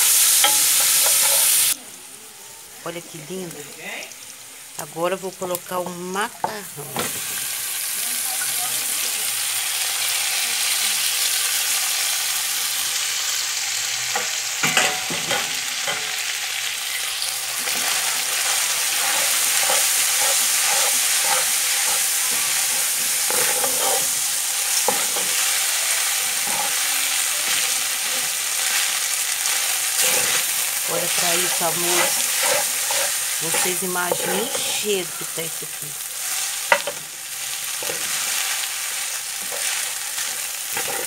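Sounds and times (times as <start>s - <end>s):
food sizzling in oil: 0.0s - 41.0s
spatula scraping and knocking pan: 0.3s - 1.7s, 14.1s - 16.1s, 17.6s - 26.8s, 29.9s - 34.8s, 36.6s - 37.0s, 39.4s - 41.0s.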